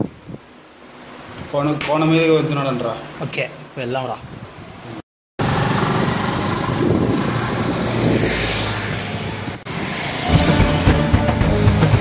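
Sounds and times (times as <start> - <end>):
motorcycle engines running: 5.4 - 8.2.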